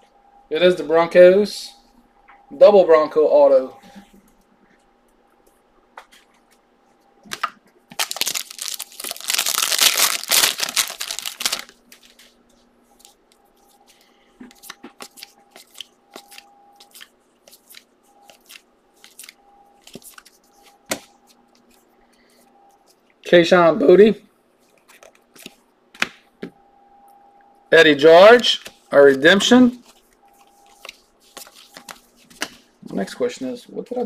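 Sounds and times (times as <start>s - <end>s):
foil wrapper tearing and crinkling: 7.9s - 11.8s.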